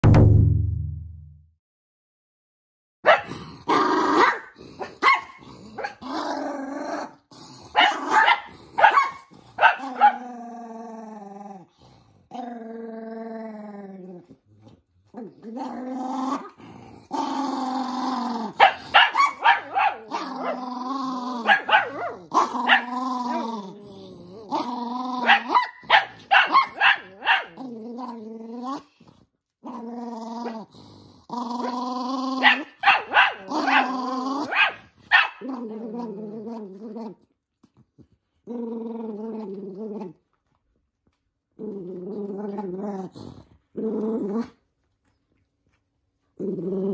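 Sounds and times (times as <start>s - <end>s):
dog barking: 3.0s - 3.4s, 4.2s - 6.0s, 7.8s - 10.2s, 18.6s - 20.6s, 21.4s - 22.9s, 25.2s - 27.6s, 32.4s - 33.9s, 34.5s - 35.4s
dog growling and snarling: 3.1s - 40.4s, 41.5s - 44.7s, 46.4s - 46.9s.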